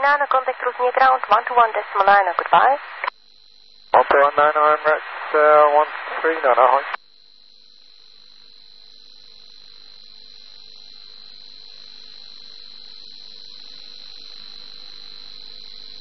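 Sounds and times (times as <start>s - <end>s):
faint radio hiss: 0.0s - 3.1s, 3.9s - 7.0s
steady high radio whistle: 3.9s - 7.0s.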